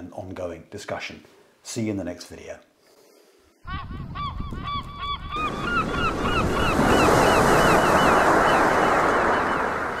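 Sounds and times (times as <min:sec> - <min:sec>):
honking bird calls: 0:03.6 - 0:10.0
waves breaking: 0:05.4 - 0:10.0.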